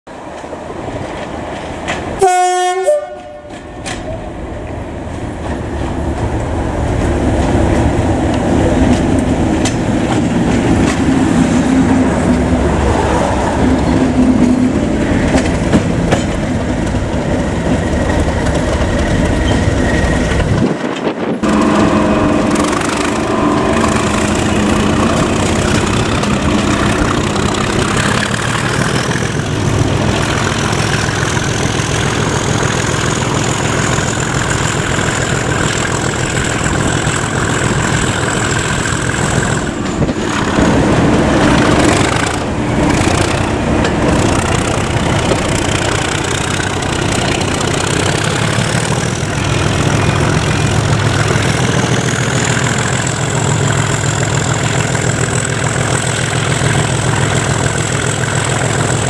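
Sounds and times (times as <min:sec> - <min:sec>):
two-note locomotive horn: 0:02.2 - 0:03.6, 0:21.4 - 0:27.2
diesel engine working hard: 0:21.4 - 0:59.0.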